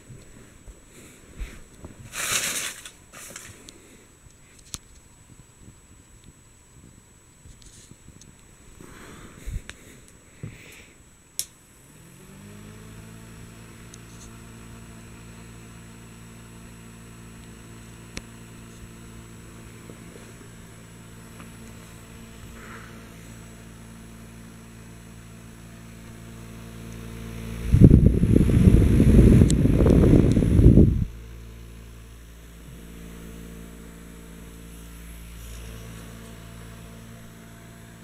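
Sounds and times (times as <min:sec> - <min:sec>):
electric fan humming: 0:00.0 - 0:38.0
air blowing on microphone: 0:27.4 - 0:31.2
fan switch click: 0:29.4 - 0:30.6.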